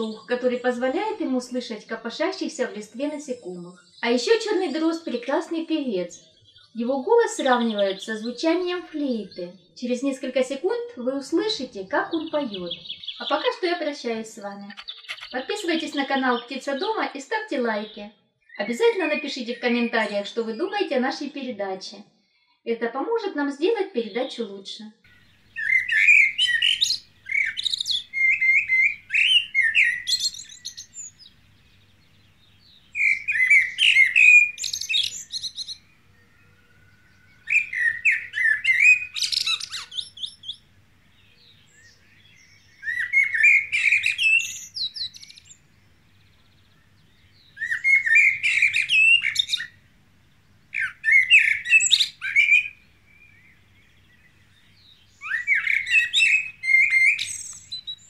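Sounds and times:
blackbird singing: 0.0s - 1.6s, 2.3s - 10.5s, 11.2s - 13.7s, 14.4s - 20.9s, 25.0s - 58.0s.

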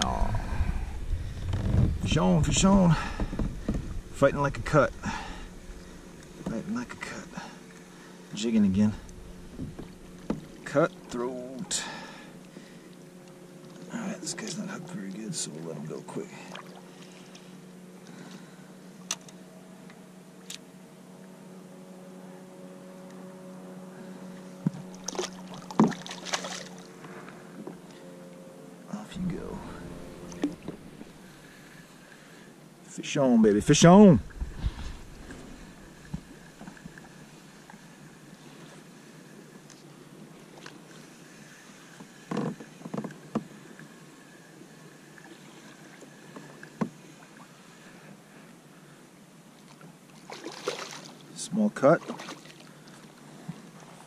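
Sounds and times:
steady low hum: 0.0s - 54.0s
water splashing: 24.7s - 27.0s, 29.0s - 32.4s, 33.6s - 38.3s, 49.6s - 54.0s.

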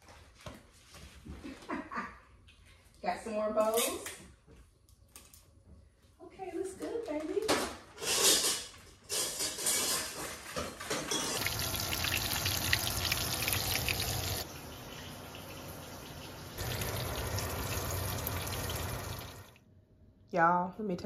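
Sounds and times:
fish frying in hot oil: 11.4s - 19.6s.

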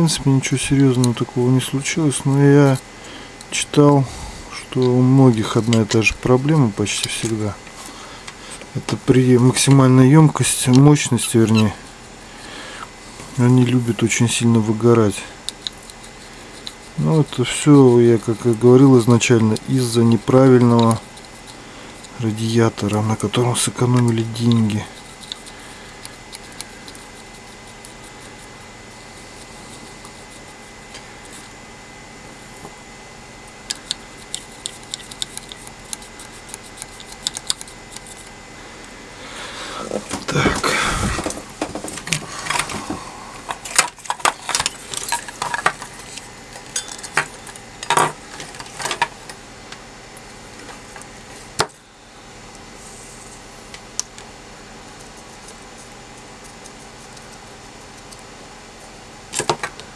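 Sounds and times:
soldering tip clicks and scratches: 33.7s - 38.3s.

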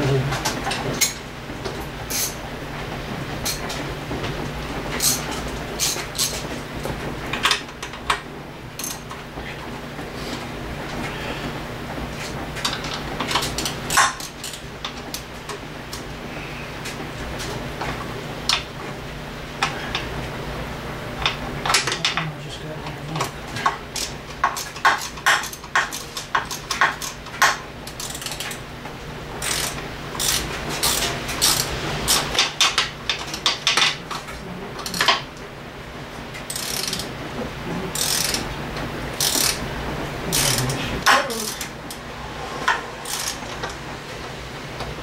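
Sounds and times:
tools and metal parts clinking: 5.0s - 6.4s.

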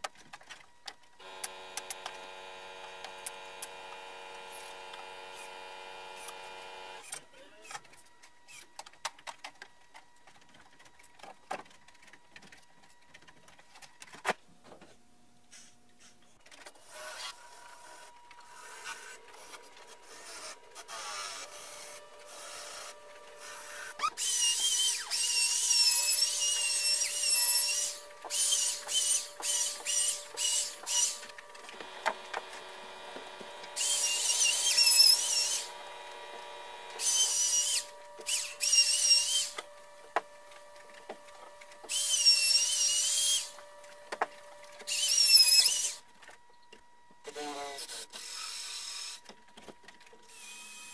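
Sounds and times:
power tool whining: 1.2s - 7.1s, 18.5s - 39.8s, 41.5s - 44.0s.

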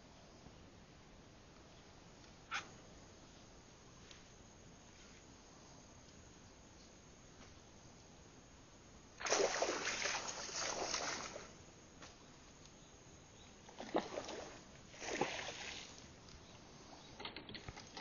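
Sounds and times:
fish splashing in water: 9.2s - 11.5s, 13.8s - 16.0s.

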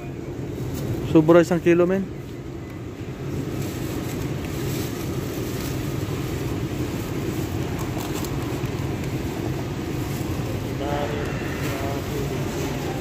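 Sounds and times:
low rumbling background noise: 0.0s - 13.0s
plastic bags rustling: 2.8s - 13.0s.

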